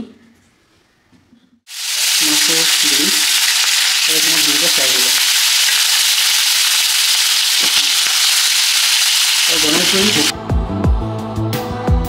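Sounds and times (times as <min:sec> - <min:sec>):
fish sizzling in hot oil: 0:01.7 - 0:10.3.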